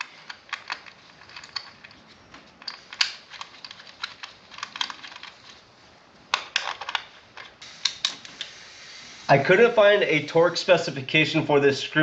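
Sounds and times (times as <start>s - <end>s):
small metal and plastic parts clicking: 0.0s - 5.6s.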